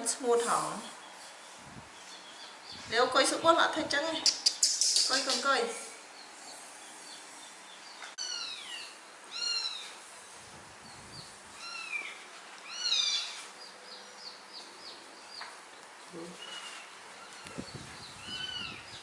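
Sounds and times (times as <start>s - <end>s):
kitten meowing: 8.2s - 9.8s, 11.6s - 13.3s.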